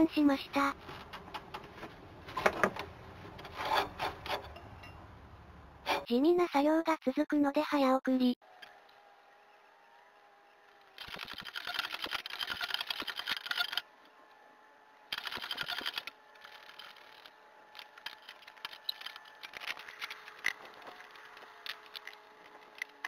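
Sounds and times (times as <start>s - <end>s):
rapid metallic clicking: 11.0s - 13.8s.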